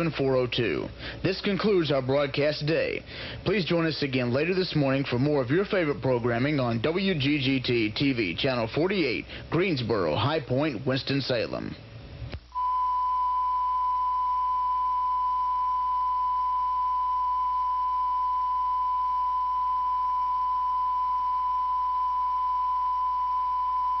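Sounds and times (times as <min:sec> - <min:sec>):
low hum: 0:12.1 - 0:24.0
steady test tone beep: 0:12.5 - 0:24.0.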